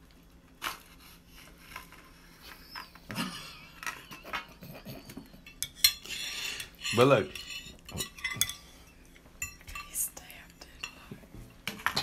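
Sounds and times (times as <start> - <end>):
knife scraping foil pie tin: 6.0 - 7.8.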